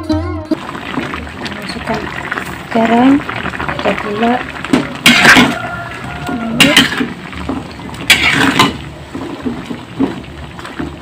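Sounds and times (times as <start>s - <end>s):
metal spatula scraping a wok: 4.8s - 8.9s.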